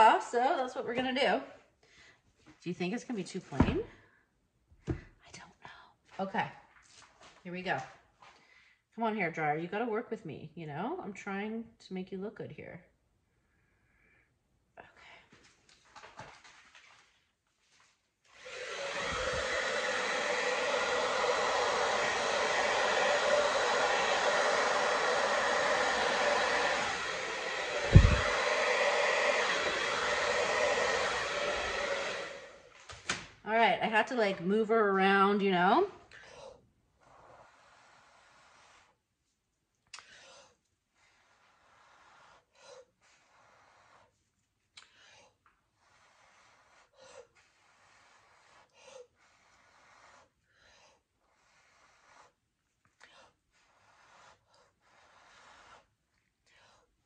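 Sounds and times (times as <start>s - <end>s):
person blowing air: 18.4s - 32.7s, 36.1s - 39.0s, 40.0s - 44.2s, 53.0s - 55.9s
hair dryer running: 18.4s - 33.2s
low thump: 27.8s - 28.5s
sharp breaths in: 40.0s - 44.2s.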